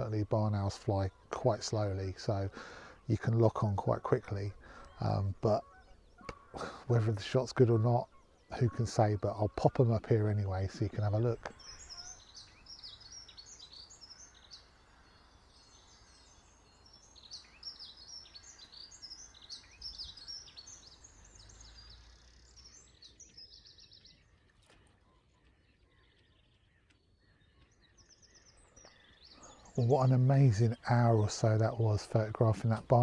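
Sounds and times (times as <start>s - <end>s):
songbirds chirping: 0.0s - 33.0s
bird trill: 4.2s - 24.4s.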